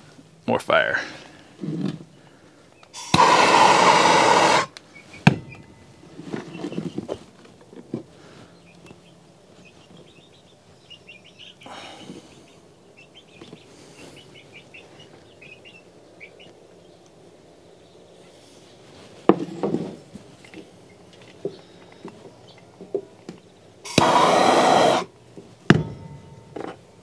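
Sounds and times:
gas torch flame hissing: 3.0s - 4.8s, 23.9s - 25.1s
sharp knock: 25.7s - 26.8s.

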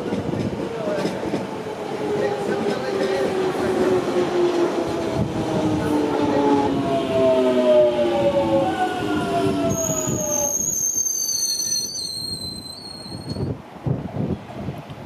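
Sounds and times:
train whine falling in pitch: 4.5s - 13.5s
wheels squealing on rails: 9.0s - 13.6s.

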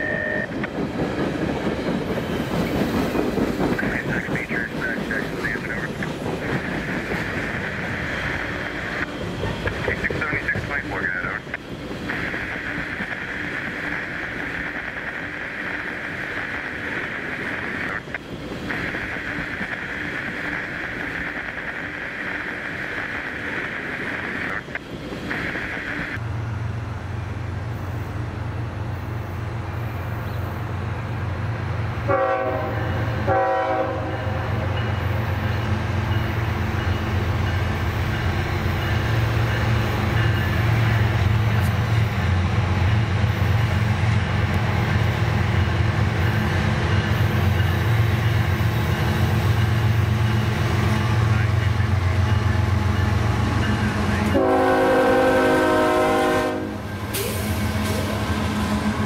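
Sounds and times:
diesel locomotive engine rumble: 0.0s - 59.0s
locomotive horn blasts: 32.1s - 34.4s, 54.2s - 56.9s.

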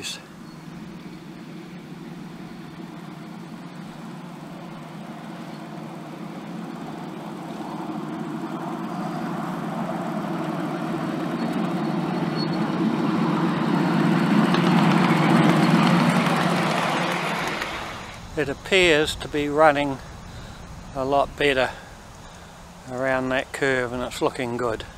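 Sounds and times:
wheels rolling on rails: 0.0s - 18.2s
locomotive drive hum: 0.0s - 24.9s.

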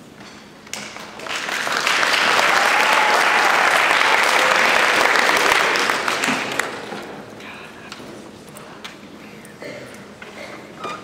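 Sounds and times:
audience applauding: 1.0s - 7.2s.

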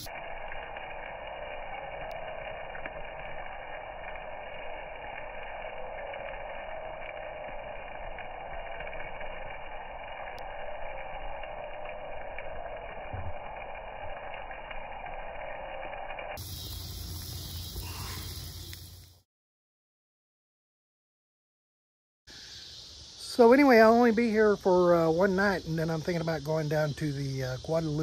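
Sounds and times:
fire crackling: 0.0s - 19.2s, 22.3s - 28.0s
steak sizzling on grill: 0.0s - 19.2s.

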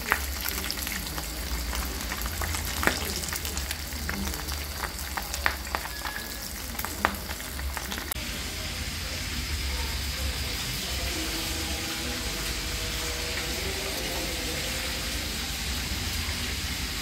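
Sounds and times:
oil popping and crackling: 0.0s - 8.3s
fish sizzling in hot oil: 0.0s - 17.0s.

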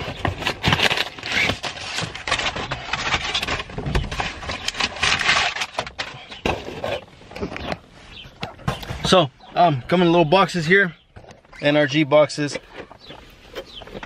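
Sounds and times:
packing paper rustling and crinkling: 0.0s - 7.7s.

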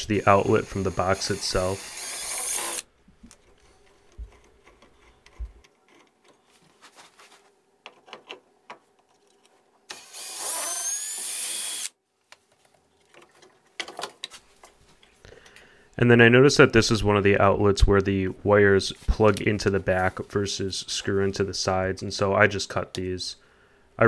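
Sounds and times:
cordless drill whining: 0.2s - 2.8s, 9.9s - 11.9s.

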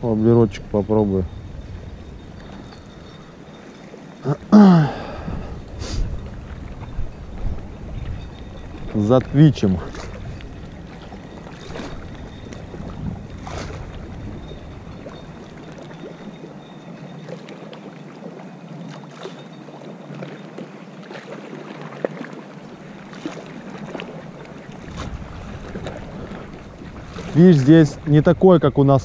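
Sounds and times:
wind buffeting microphone: 0.0s - 16.7s, 23.8s - 29.0s.

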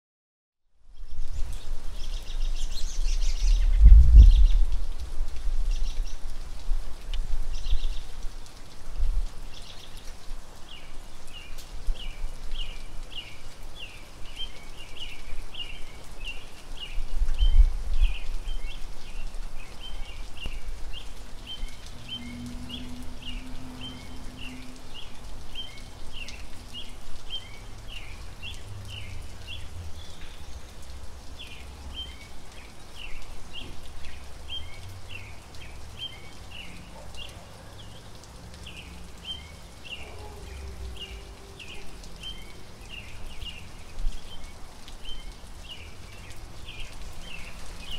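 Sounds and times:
water dripping lightly: 0.9s - 47.9s
low uneven rumble: 3.3s - 4.8s.

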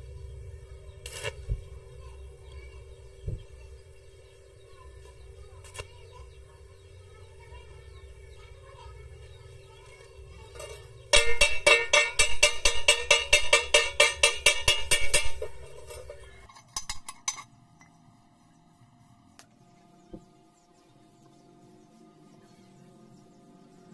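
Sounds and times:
hammer striking metal pipe: 10.6s - 17.4s.

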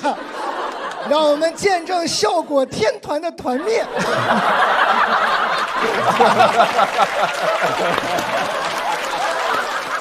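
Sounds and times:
audience laughing: 0.0s - 2.7s, 3.4s - 10.0s
applause: 5.2s - 10.0s.

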